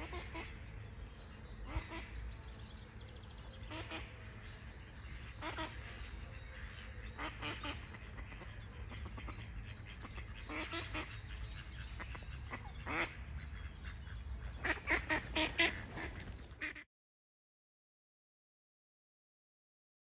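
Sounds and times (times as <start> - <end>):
ducks quacking: 0.0 - 2.7, 3.6 - 16.9.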